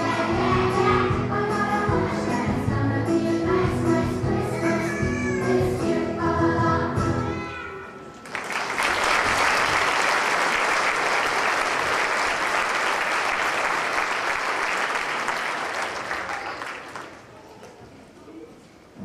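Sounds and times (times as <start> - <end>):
children's choir singing: 0.0 - 7.4
audience applause: 8.2 - 17.3.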